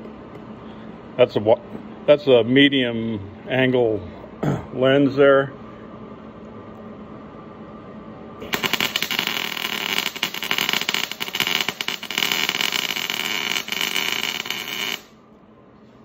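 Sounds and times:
welding arc crackling: 8.4s - 15.2s.

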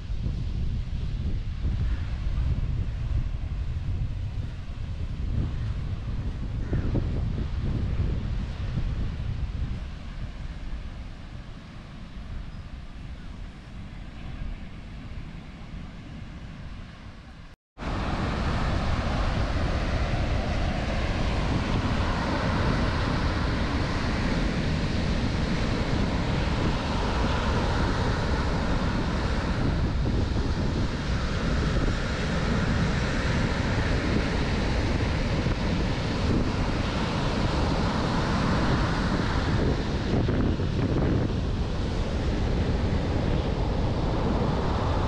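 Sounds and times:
wind buffeting microphone: 0.0s - 45.0s
surf washing up beach: 17.8s - 45.0s.

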